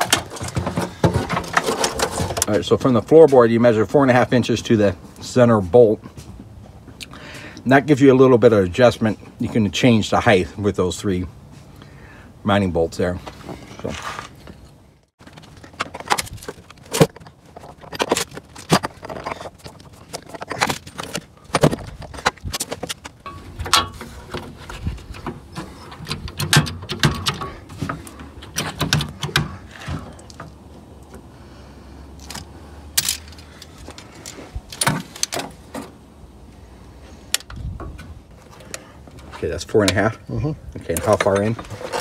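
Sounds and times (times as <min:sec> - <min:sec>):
metal hardware clinking and rattling: 0:00.0 - 0:02.8, 0:14.6 - 0:31.2, 0:32.2 - 0:36.0, 0:37.2 - 0:42.0.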